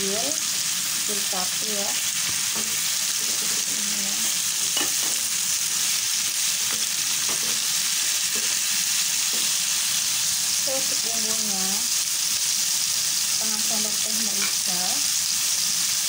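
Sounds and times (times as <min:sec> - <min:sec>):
food sizzling in hot oil: 0:00.0 - 0:16.0
spatula scraping and tapping pan: 0:06.6 - 0:09.6.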